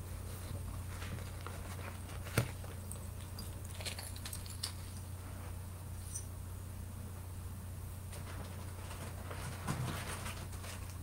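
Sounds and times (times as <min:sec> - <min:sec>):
steady low hum: 0:00.0 - 0:11.0
jewelry clicking and rattling: 0:03.0 - 0:05.1.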